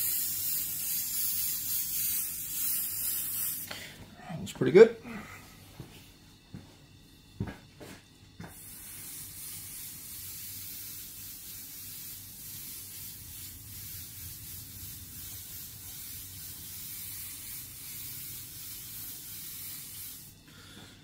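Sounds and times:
paint sprayer hissing: 0.0 - 3.7, 8.4 - 20.3.

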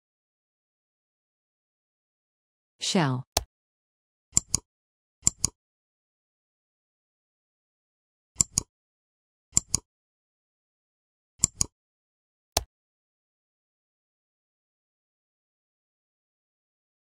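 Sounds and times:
computer mouse clicks: 4.4 - 4.6, 5.2 - 5.6, 8.4 - 8.7, 9.6 - 9.8, 11.4 - 11.7.

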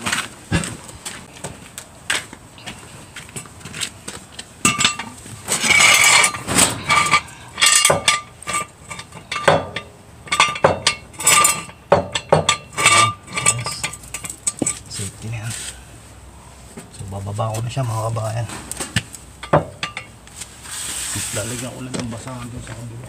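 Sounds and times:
metal clinks and clanks: 4.6 - 14.9, 19.4 - 20.2
metal scrape: 4.7 - 15.8, 19.5 - 21.9.

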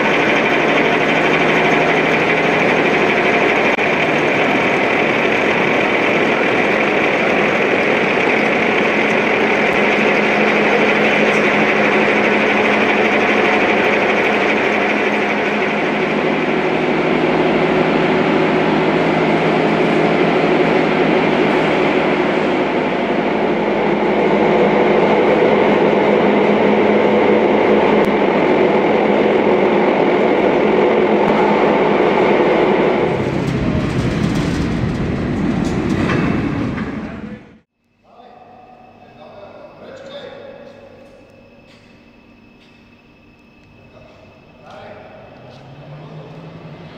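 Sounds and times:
lifting gear whine and hum: 0.0 - 46.9.

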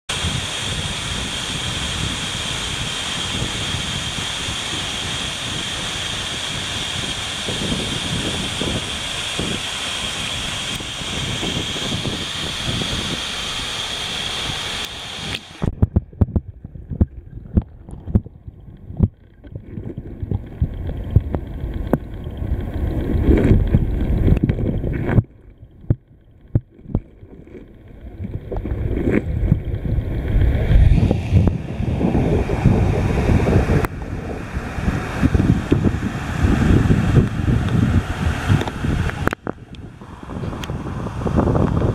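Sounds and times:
waterfall rushing: 0.1 - 15.7, 28.2 - 41.9
low rumble of churning water: 0.1 - 41.9
muffled underwater gurgling: 0.2 - 41.9
underwater knocks and pops: 15.6 - 31.6.

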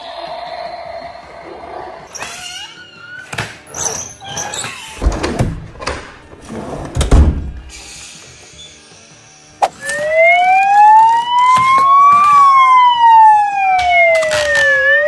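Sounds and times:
wavering squeaky tones: 1.9 - 5.0.

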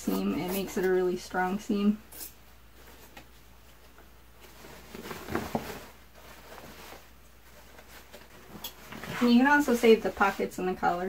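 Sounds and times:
cloth rustling: 2.5 - 11.0.

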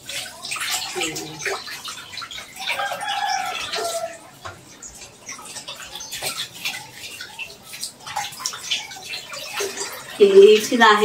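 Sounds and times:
water splashing into steel pot: 0.0 - 11.0.

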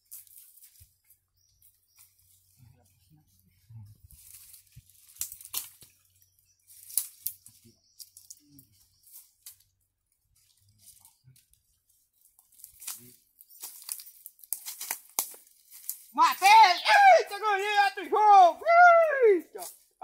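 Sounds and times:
footsteps crunching dry leaves: 0.0 - 2.6, 4.0 - 9.7, 10.3 - 17.9.

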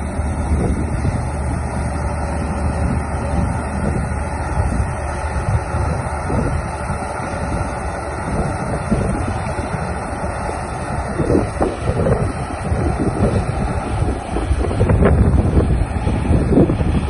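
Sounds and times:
combine harvester running: 0.0 - 17.0
wind buffeting microphone: 0.0 - 17.0.

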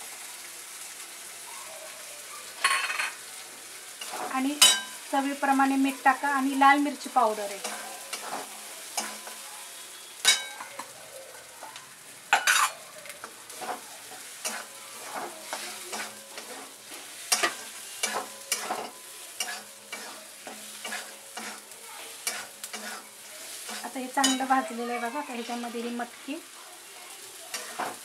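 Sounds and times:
sizzling in oil: 0.0 - 28.0
metal spatula scraping pan: 13.6 - 25.9, 27.5 - 28.0.

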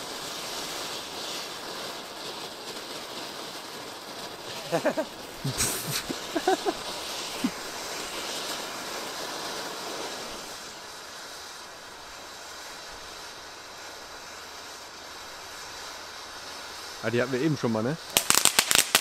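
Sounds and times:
firework fountain hissing: 0.0 - 19.0
sharp crack: 4.4 - 8.7, 18.1 - 19.0
short pops: 4.5 - 6.6.

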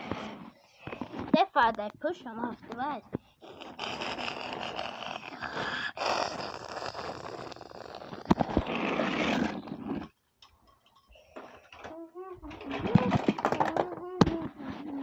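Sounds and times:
microphone rubbing against cloth: 0.0 - 1.4, 2.4 - 10.2.

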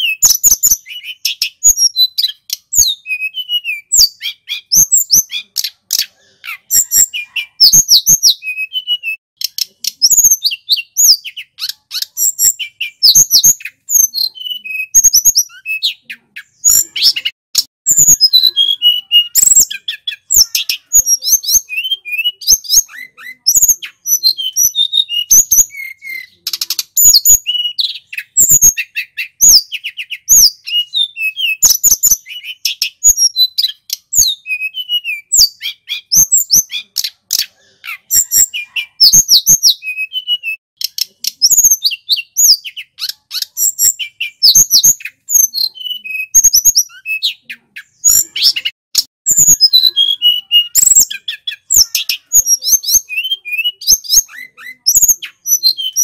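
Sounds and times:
bird whistling song: 0.0 - 56.0.

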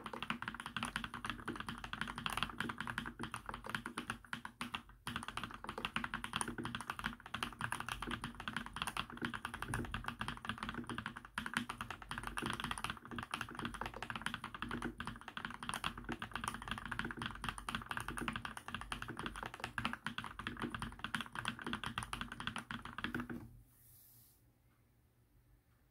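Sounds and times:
mechanical keyboard typing: 0.0 - 23.5.

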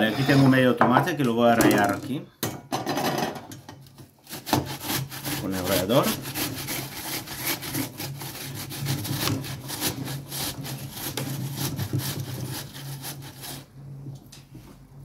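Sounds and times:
tomato rasping on a metal grater: 4.2 - 13.7.

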